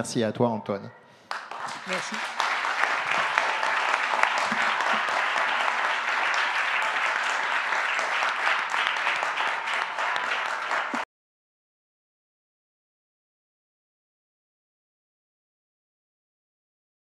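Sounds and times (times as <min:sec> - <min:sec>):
audience applauding: 0:01.2 - 0:11.1.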